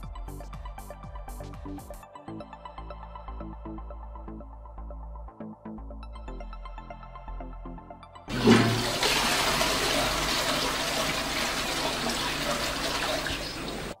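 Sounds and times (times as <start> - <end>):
toilet flushing: 8.3 - 14.0.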